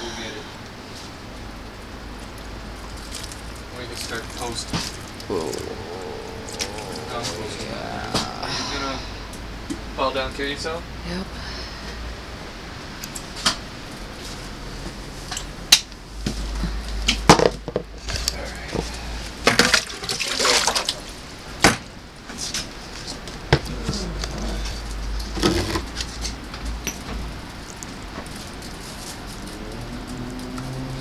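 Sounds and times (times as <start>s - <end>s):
low rumble of storm wind: 0.5s - 17.3s
soil pouring with rustling: 2.3s - 5.3s.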